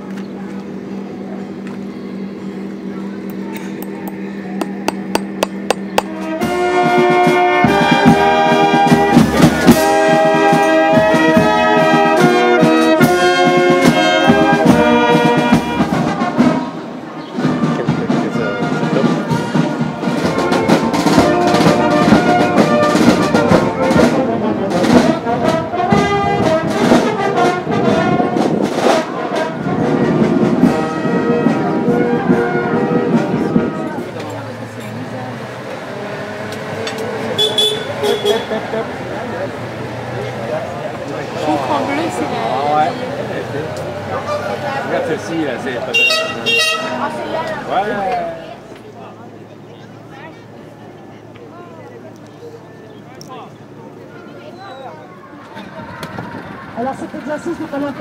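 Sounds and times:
marching brass band playing: 5.0s - 48.0s.

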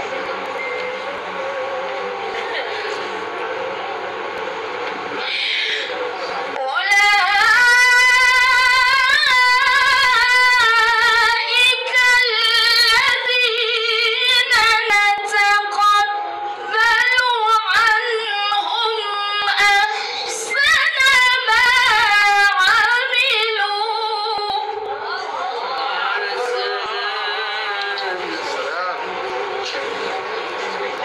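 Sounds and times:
woman chanting into a microphone: 6.6s - 25.3s, 26.1s - 28.0s.

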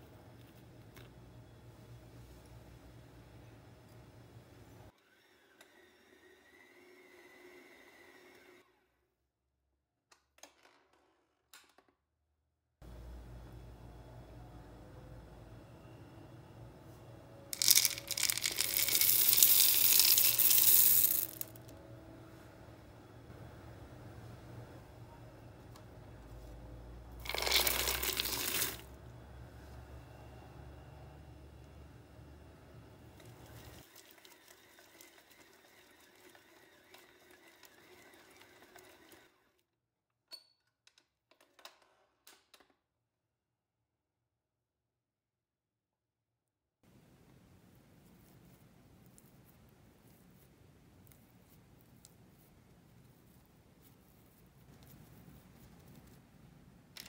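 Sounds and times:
chocolate chips rattling into bowl: 17.6s - 21.6s, 27.2s - 28.9s.

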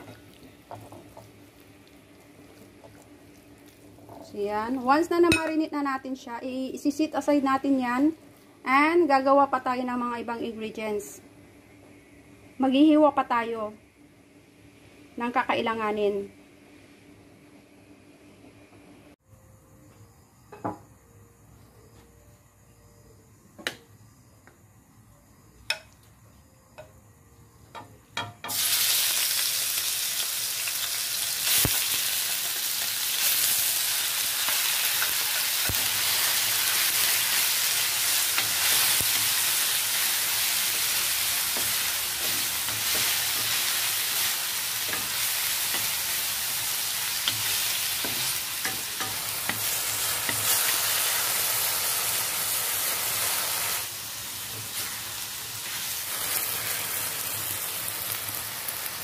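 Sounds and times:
chicken sizzling in hot oil: 0.0s - 6.0s, 28.4s - 59.0s.

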